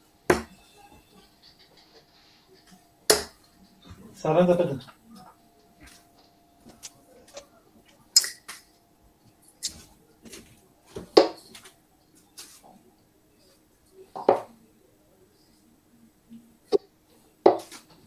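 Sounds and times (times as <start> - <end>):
darts tapping: 0.3 - 0.6, 2.6 - 3.5, 11.0 - 11.7, 16.7 - 18.0.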